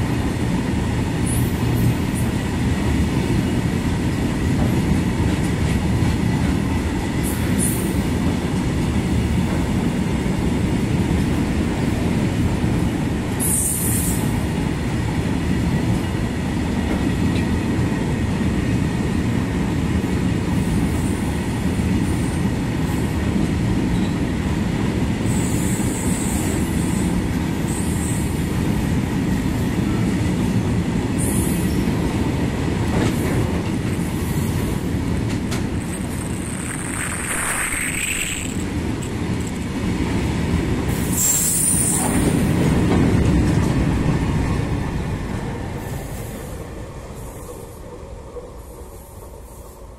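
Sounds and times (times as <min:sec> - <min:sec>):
freight train rolling past: 0:00.0 - 0:49.9
wheel squeals: 0:35.8 - 0:39.6.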